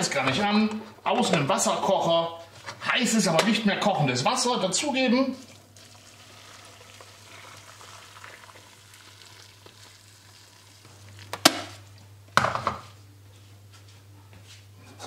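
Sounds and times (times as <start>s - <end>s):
water pouring from kettle: 5.4s - 11.9s.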